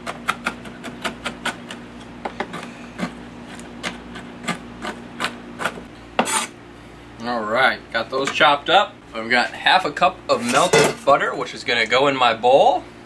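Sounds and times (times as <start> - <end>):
knife chopping on wooden board: 0.0 - 6.4.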